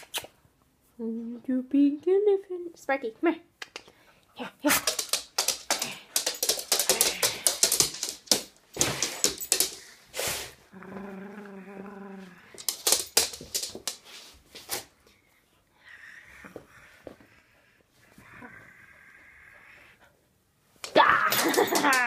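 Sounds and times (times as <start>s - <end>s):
dog claws and teeth clicking: 4.6s - 9.9s, 12.5s - 14.0s
dog growling: 10.7s - 12.7s.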